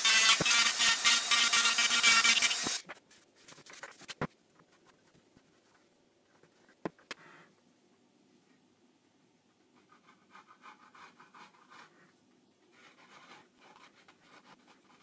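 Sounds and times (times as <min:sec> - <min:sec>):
rotary tool whining and scraping: 0:00.0 - 0:02.8.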